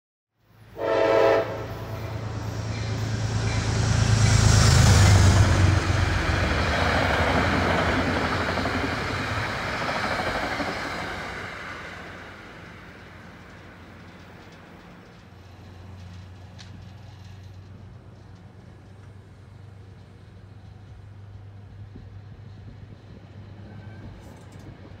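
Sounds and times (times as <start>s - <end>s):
train rumbling past: 0.5s - 25.0s
train horn blast: 0.7s - 3.1s.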